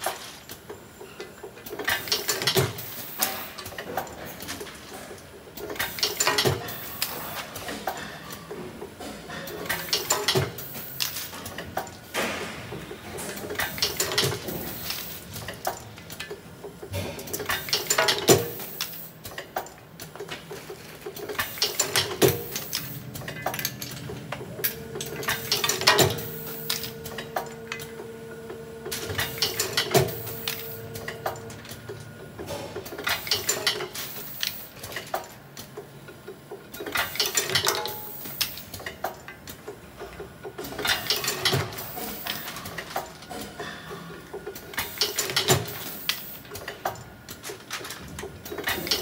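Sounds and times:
machine clicks and clatter: 0.0 - 49.0
steady hum: 21.1 - 33.1.

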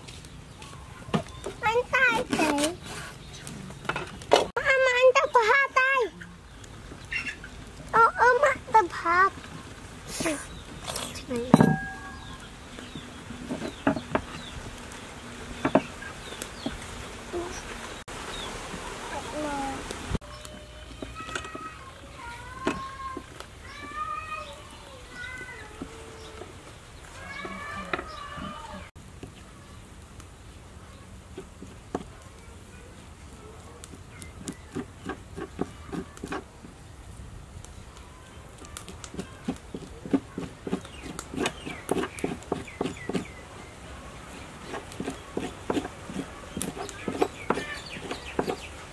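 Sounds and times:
metal rod knocking on wood: 11.5 - 12.1.

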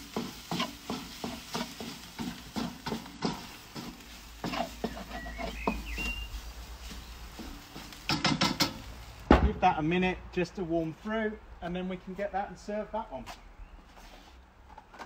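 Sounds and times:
wooden spatula scraping wok: 0.0 - 9.3.

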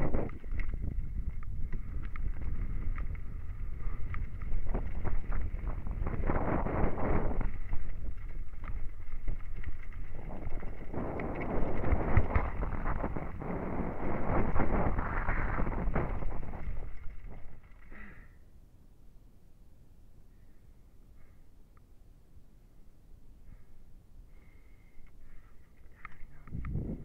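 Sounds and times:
wind buffeting microphone: 0.0 - 17.9, 26.0 - 27.0
bike rattling and knocking: 0.0 - 18.1.

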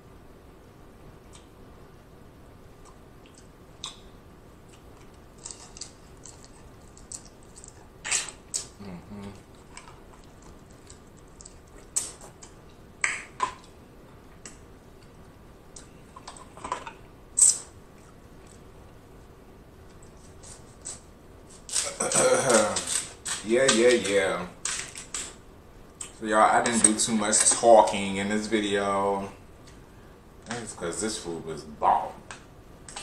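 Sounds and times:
scissors cutting shell: 21.7 - 25.3.

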